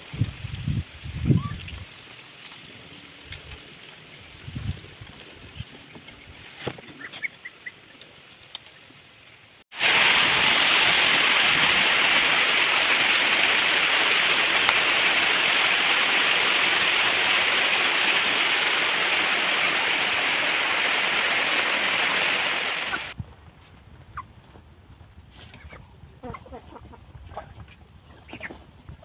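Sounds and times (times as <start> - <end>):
heavy rain falling: 9.7 - 23.2.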